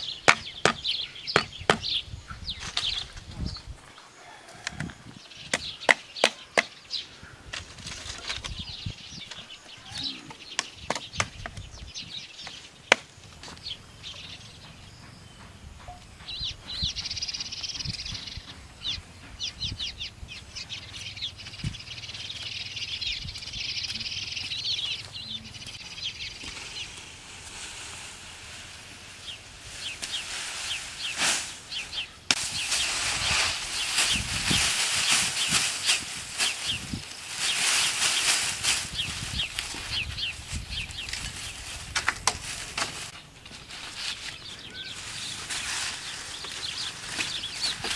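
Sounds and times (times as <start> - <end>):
wood knocking bamboo stakes: 0.0 - 2.0, 5.5 - 6.8, 10.3 - 11.7, 12.4 - 13.6, 41.9 - 43.6, 46.4 - 47.9
cut grass rustling: 24.0 - 47.9.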